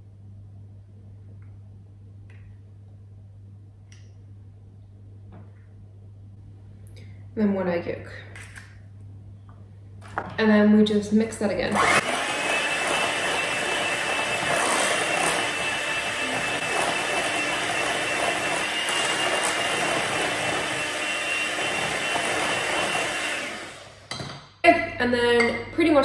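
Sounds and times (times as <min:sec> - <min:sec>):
electric hand mixer whining: 0:11.7 - 0:24.1.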